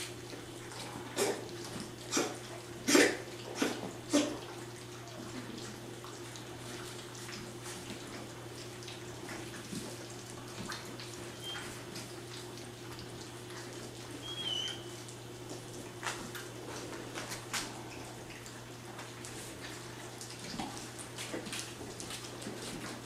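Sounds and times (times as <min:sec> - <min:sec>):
puppies lapping and slurping: 0:00.0 - 0:23.0
puppy squeak: 0:14.2 - 0:14.9.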